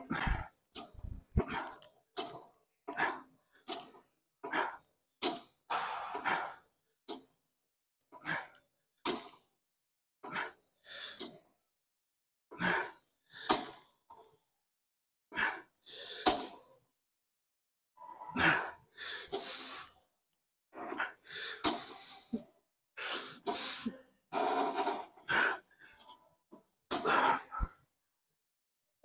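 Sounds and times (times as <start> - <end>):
man breathing hard: 0.0 - 1.9, 26.9 - 27.8.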